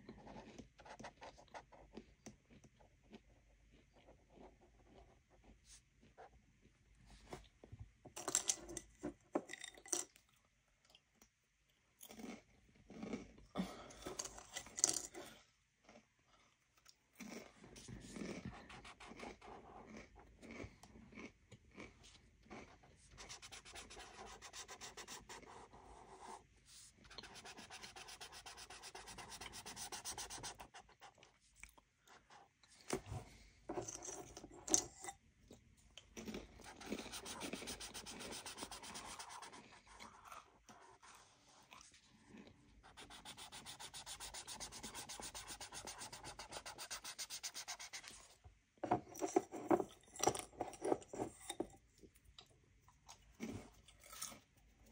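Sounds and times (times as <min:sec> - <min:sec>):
marker scrubbing on paper: 0:23.2 - 0:31.2, 0:36.6 - 0:40.2, 0:42.8 - 0:48.3.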